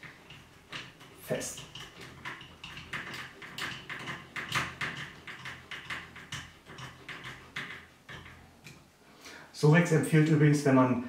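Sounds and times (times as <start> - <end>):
screwdriver clicking and scraping: 0.0 - 8.8.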